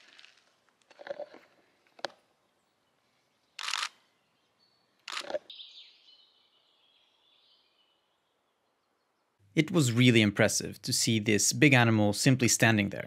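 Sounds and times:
camera shutter clicks: 3.6 - 4.0, 5.0 - 5.5.

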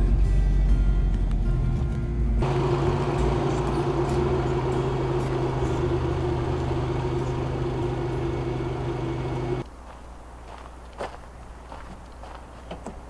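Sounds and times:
car engine running at low revs: 1.0 - 9.7.

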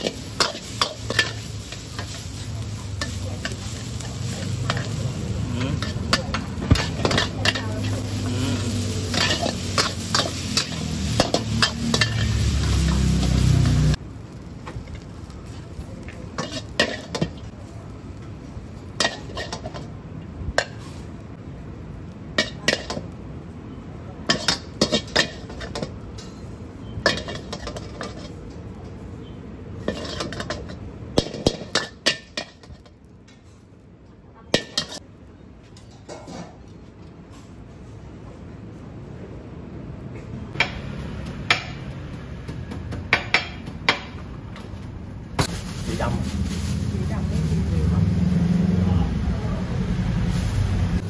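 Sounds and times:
spatula scraping in wok: 0.0 - 14.0, 14.8 - 17.5, 18.8 - 20.0, 24.2 - 28.6, 29.3 - 33.7, 34.6 - 35.0
frying sizzle: 0.0 - 37.7, 40.5 - 51.0.

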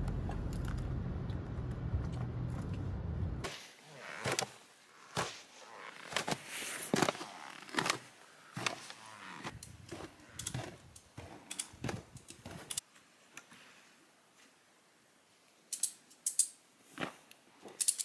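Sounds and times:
footsteps crunching in snow: 3.5 - 12.8.

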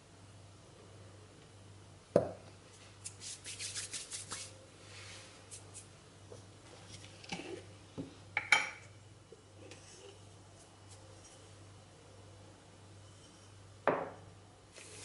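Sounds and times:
dishes rustling and scraping: 9.6 - 11.5, 13.0 - 14.2.

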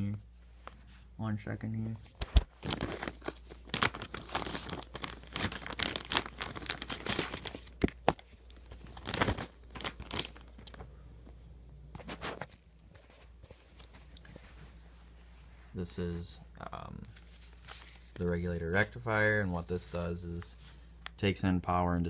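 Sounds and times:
plastic bag and paper crinkling: 2.2 - 10.9, 16.9 - 21.2.

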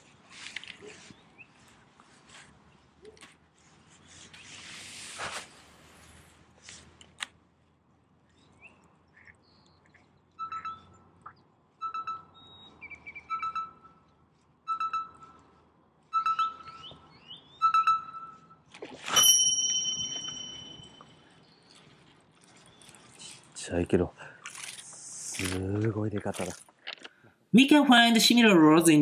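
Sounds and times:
fishing reel whirring rattle: 19.1 - 21.0.

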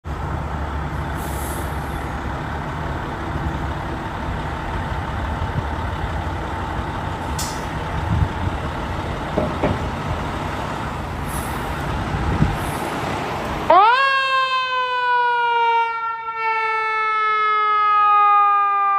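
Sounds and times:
diesel engine idling: 0.0 - 13.9
air brake hisses: 1.1 - 2.1, 11.2 - 11.8, 12.5 - 13.0.

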